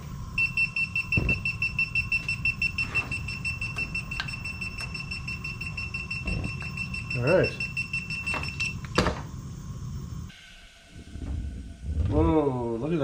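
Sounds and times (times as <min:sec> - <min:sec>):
gas detector alarm beeping: 0:00.0 - 0:09.5.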